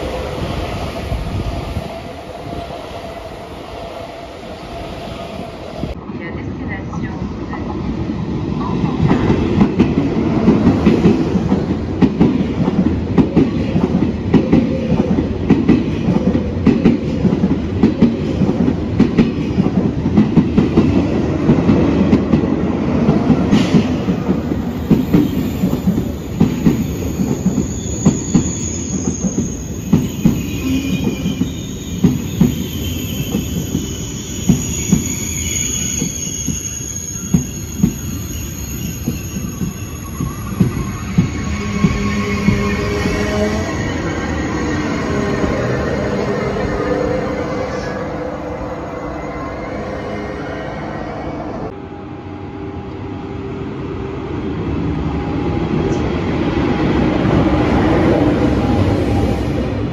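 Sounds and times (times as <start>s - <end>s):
high metallic squeal: 26.8s - 51.7s
train wheels clattering over rails: 38.9s - 43.5s.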